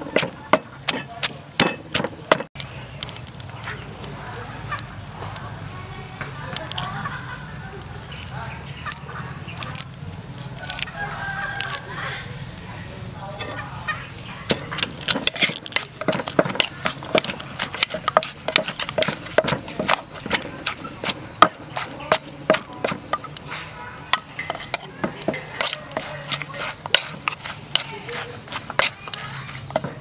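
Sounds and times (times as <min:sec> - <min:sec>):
pestle pounding in mortar: 0:00.0 - 0:02.5, 0:14.5 - 0:23.4, 0:24.1 - 0:30.0.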